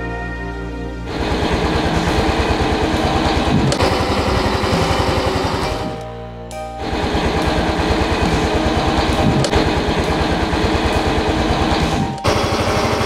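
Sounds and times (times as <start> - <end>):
motorcycle engine idling: 7.1 - 13.0.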